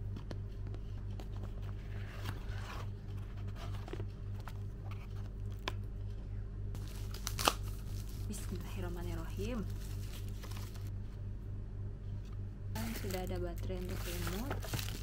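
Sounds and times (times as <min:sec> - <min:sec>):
steady low hum: 0:00.0 - 0:15.0
cardboard box scraping and rustling: 0:01.6 - 0:04.1, 0:13.8 - 0:15.0.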